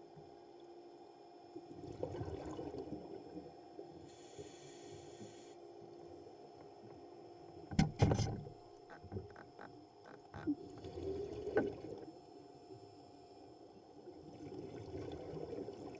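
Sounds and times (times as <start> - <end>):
steady underwater hum: 0.0 - 15.9
breath hissing through regulator: 4.1 - 5.6
sharp knocks on camera: 7.7 - 8.4.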